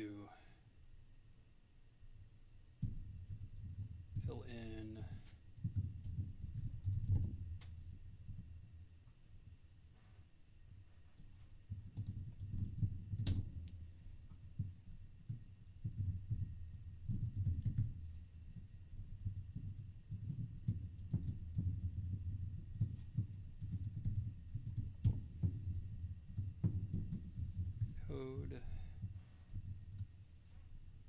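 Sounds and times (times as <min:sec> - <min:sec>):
typing on computer keyboard: 0:02.8 - 0:08.5, 0:11.2 - 0:30.1.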